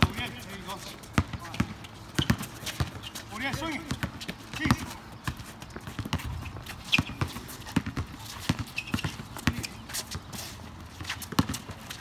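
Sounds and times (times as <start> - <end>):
basketball bouncing: 0.0 - 9.8, 11.0 - 12.0
sneaker squeaks: 0.0 - 12.0
sneakers landing on court: 1.2 - 4.9.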